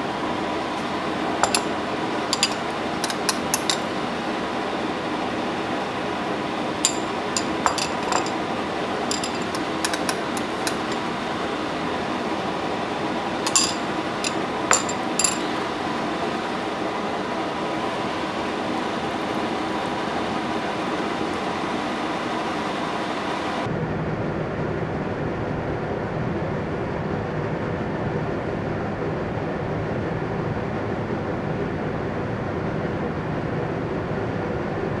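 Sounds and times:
steady background hum: 0:00.0 - 0:35.0
sharp clinks: 0:01.4 - 0:01.7, 0:02.3 - 0:03.9, 0:06.9 - 0:08.4, 0:09.1 - 0:11.1, 0:13.5 - 0:15.6.

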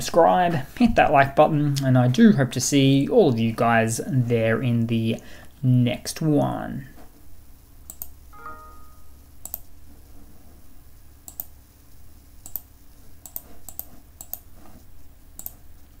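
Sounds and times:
low steady hum: 0:00.0 - 0:16.0
computer mouse clicking: 0:07.8 - 0:08.2, 0:09.4 - 0:09.7, 0:11.2 - 0:11.6, 0:12.4 - 0:16.0
brief multi-pitch tone: 0:08.3 - 0:09.3.

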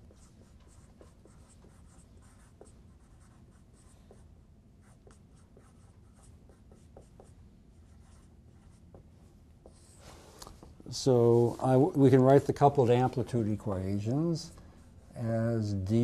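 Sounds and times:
marker squeaking on whiteboard: 0:00.0 - 0:04.2.

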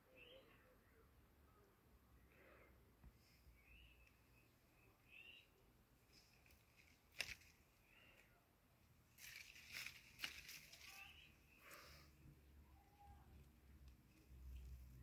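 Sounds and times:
kittens scratching and rustling: 0:09.1 - 0:11.3.

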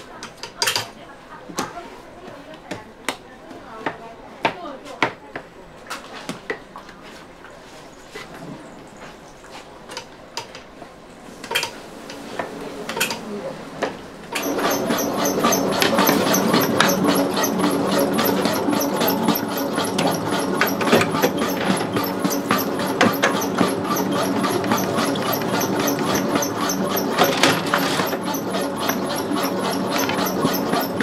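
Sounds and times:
electric motor humming and clattering: 0:14.3 - 0:31.0.

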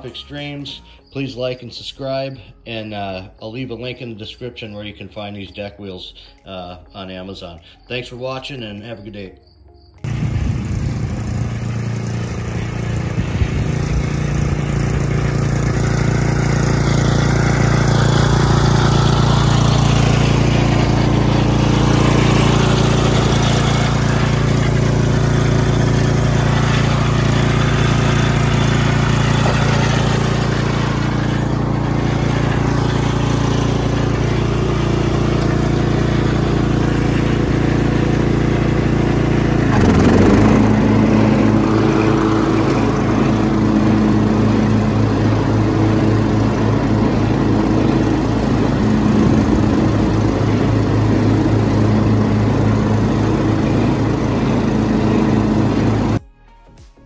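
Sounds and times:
riding lawn mower engine running: 0:00.0 - 0:56.2.

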